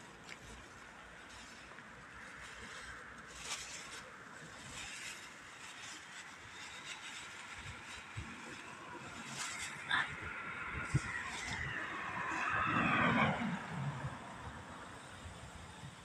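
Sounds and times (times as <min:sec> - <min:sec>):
soft rustles: 0:00.0 - 0:12.5.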